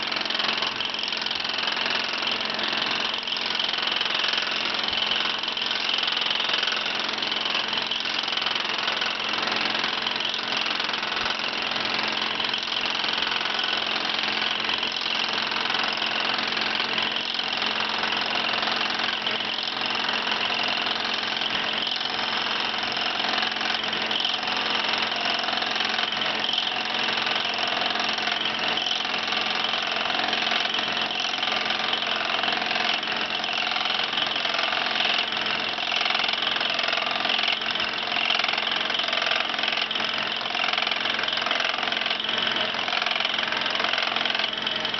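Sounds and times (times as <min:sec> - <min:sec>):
lathe cutterhead whirring: 0:00.0 - 0:44.9.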